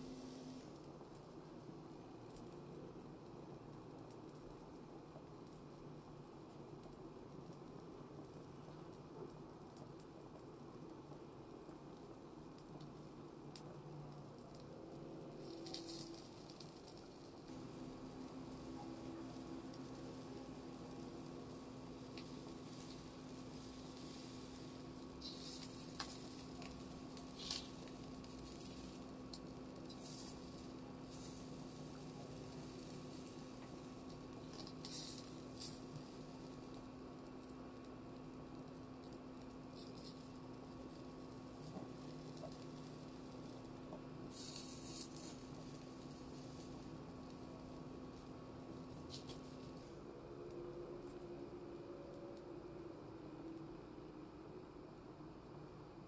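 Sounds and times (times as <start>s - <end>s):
skewers sizzling on grill: 0.0s - 55.8s
steady low hum: 0.0s - 56.0s
spitting crackles: 15.3s - 36.5s.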